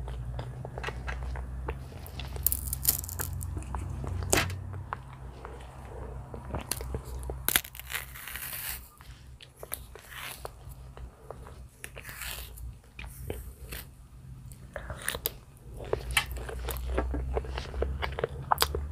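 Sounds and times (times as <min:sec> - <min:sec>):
low steady hum: 0:00.0 - 0:18.9
banana peels snapping and tearing: 0:02.0 - 0:04.6, 0:06.7 - 0:08.9.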